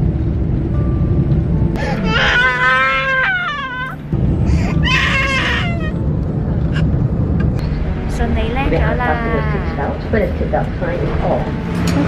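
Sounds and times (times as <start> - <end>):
toddler whining and crying: 1.8 - 4.0, 4.6 - 6.0.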